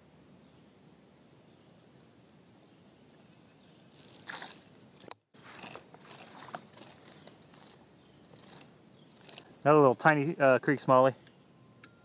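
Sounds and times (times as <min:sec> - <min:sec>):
rustling and scraping handling noise: 0:03.8 - 0:10.2.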